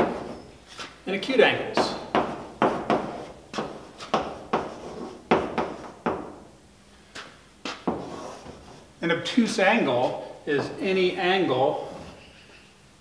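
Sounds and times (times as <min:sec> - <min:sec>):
chalk writing on blackboard: 0:00.0 - 0:01.0, 0:01.8 - 0:06.0, 0:07.7 - 0:08.9.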